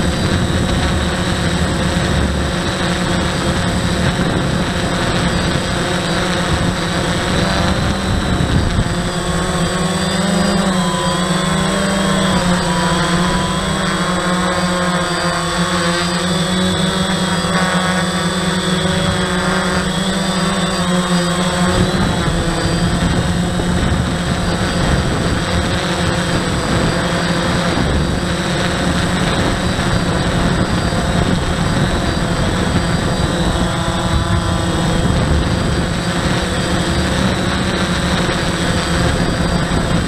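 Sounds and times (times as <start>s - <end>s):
drone propellers whirring: 0.0s - 40.0s.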